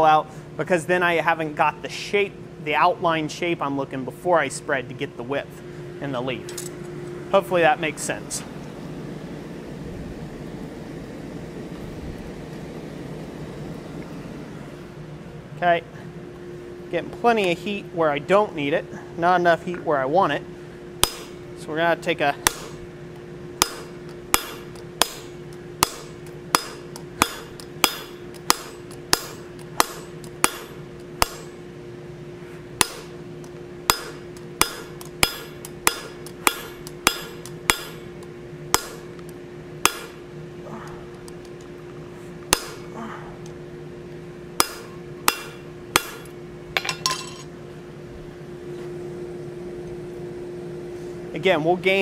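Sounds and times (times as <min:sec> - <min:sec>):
steady low hum: 0:00.0 - 0:52.0
hammer striking steel on anvil: 0:21.0 - 0:21.4, 0:22.4 - 0:22.8, 0:23.6 - 0:31.6, 0:32.8 - 0:33.2, 0:33.9 - 0:38.1, 0:38.7 - 0:39.1, 0:39.8 - 0:40.3, 0:42.5 - 0:42.9, 0:44.6 - 0:47.5.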